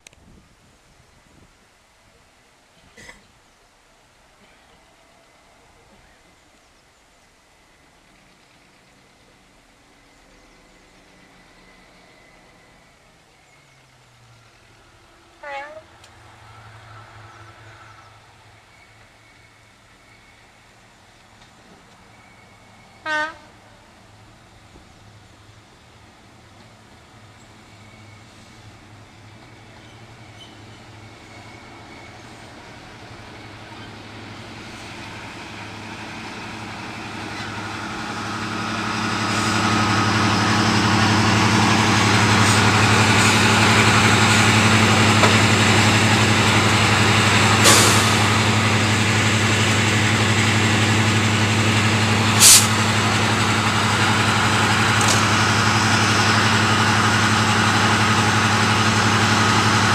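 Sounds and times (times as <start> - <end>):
diesel locomotive engine hum: 0.0 - 59.9
sharp air hisses: 47.4 - 48.5, 52.4 - 52.9.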